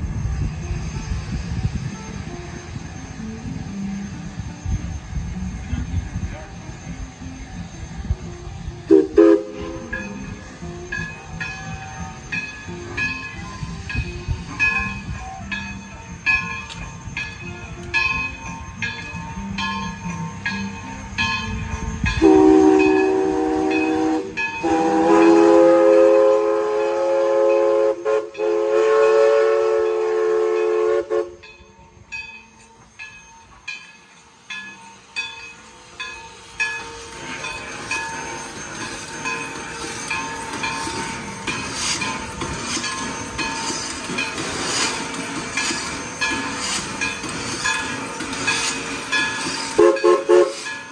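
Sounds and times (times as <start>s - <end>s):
hissing steam: 0.0s - 50.9s
steam locomotive chime whistle: 0.0s - 50.9s
steam exhaust chuffs: 16.6s - 31.5s, 33.9s - 50.9s.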